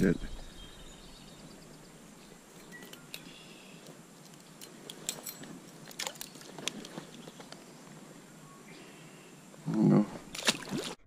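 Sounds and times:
fishing tackle clicking: 4.2 - 7.2.

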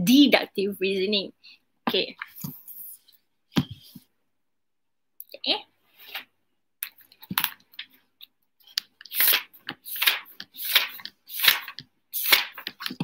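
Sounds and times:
paper being handled: 8.7 - 13.0.

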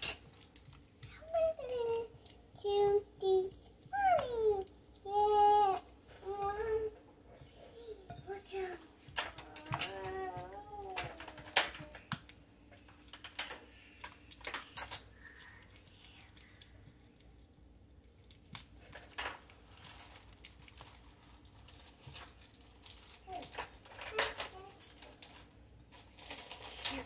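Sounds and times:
kitchen utensils and dishes clicking: 0.0 - 0.4.

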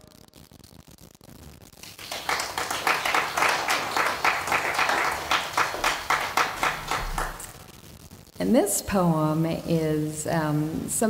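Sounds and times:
audience clapping: 1.8 - 7.7.

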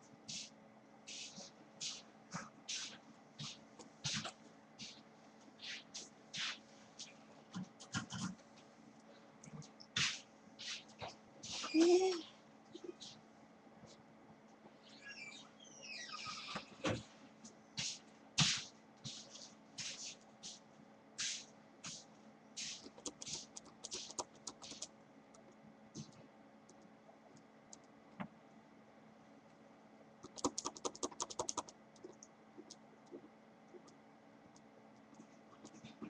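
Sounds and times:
drawing tool scratching paper: 22.6 - 24.9, 30.3 - 31.7.

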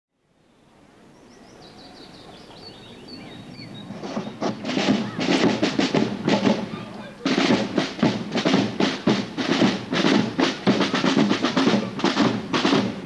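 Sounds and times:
birds chirping: 1.1 - 13.0
snare drums beating: 3.9 - 13.0.

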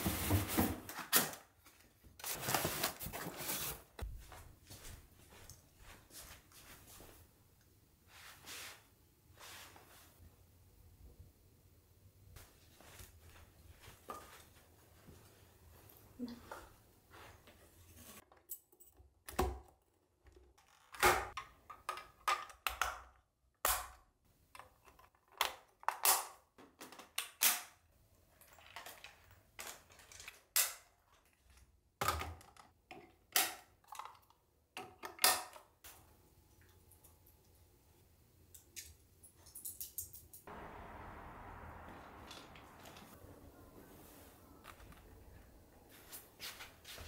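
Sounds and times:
soft steady hiss: 40.5 - 47.0.

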